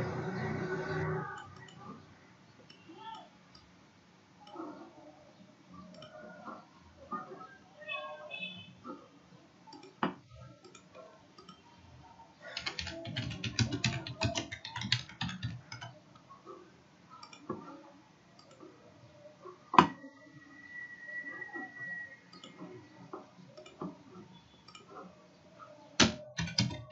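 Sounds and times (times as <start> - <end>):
keyboard typing: 12.4 - 16.3, 26.0 - 26.9
faint steady high tone: 18.4 - 24.8.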